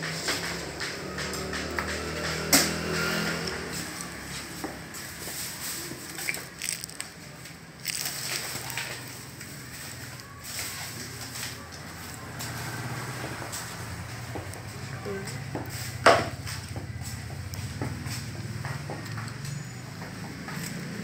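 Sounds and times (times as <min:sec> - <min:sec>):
monkey chewing a biscuit: 0:05.8 - 0:09.3.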